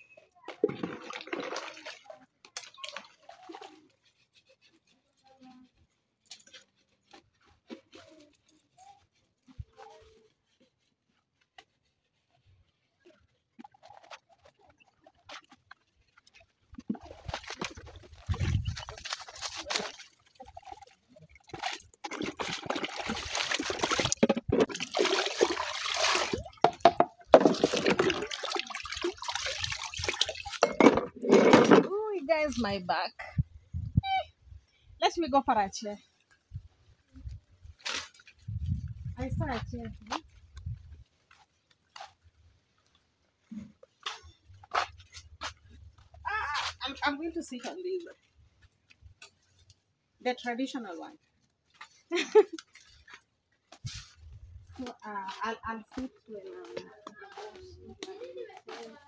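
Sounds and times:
water splashing in basin: 0.5 - 3.8, 16.3 - 32.7
plastic dishes knocking: 24.0 - 24.9, 26.6 - 28.3, 30.6 - 31.9
plastic knocking on plastic: 26.6 - 28.2.

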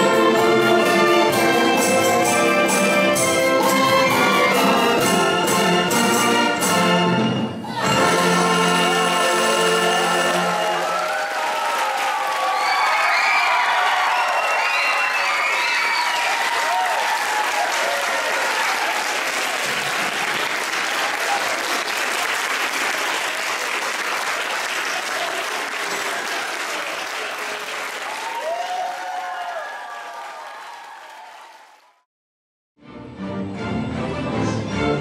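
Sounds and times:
crowd clapping: 10.4 - 32.0.

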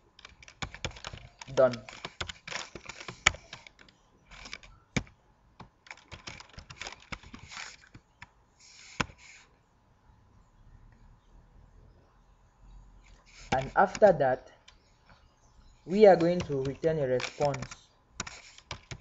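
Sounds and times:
typing on computer keyboard: 0.1 - 8.0, 15.9 - 19.0.

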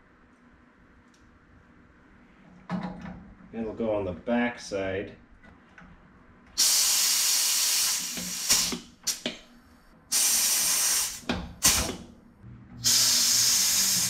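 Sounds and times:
pneumatic tool air hiss: 6.6 - 9.3, 10.1 - 12.0, 12.8 - 14.0.

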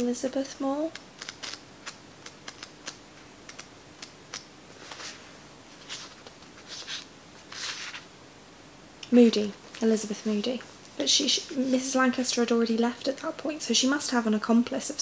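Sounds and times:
pages turning: 4.7 - 8.1.

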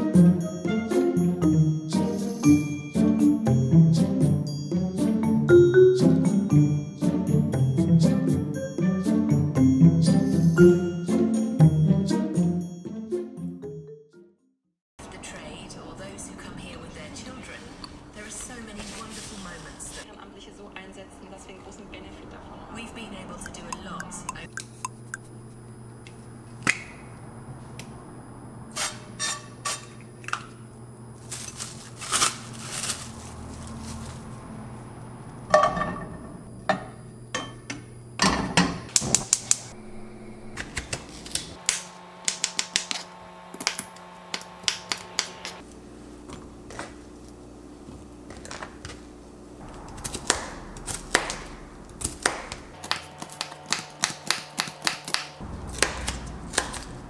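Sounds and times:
knife chopping on cutting board: 50.2 - 56.9.

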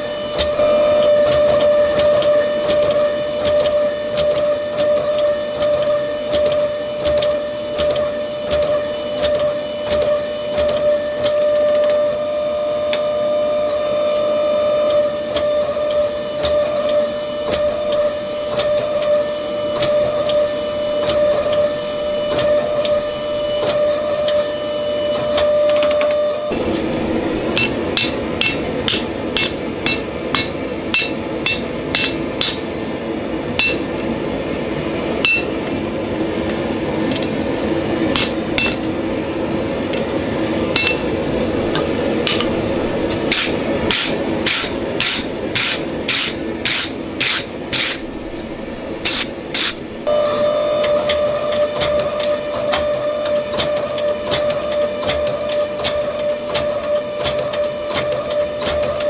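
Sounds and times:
hydraulic press motor humming: 0.0 - 59.0
hammer blows on anvil: 27.6 - 32.7, 33.6 - 34.0, 35.2 - 35.6, 38.1 - 39.0, 40.7 - 41.2.

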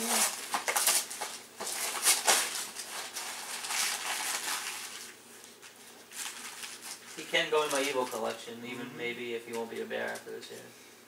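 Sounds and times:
wrapping paper rustling and tearing: 0.0 - 8.4.

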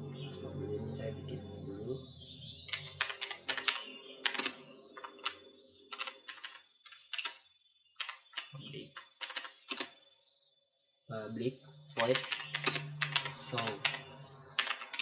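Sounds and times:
computer keyboard typing: 2.7 - 7.4, 8.0 - 10.0, 11.9 - 15.0.

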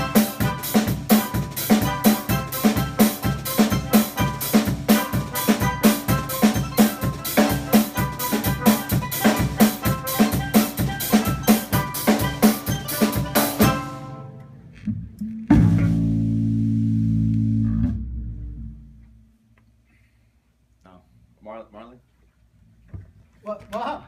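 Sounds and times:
drum kit steady beat: 0.0 - 14.2, 15.2 - 18.0.

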